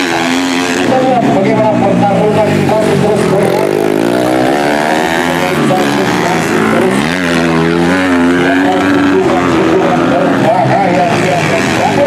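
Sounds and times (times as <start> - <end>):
motorcycle engines revving: 0.0 - 12.0.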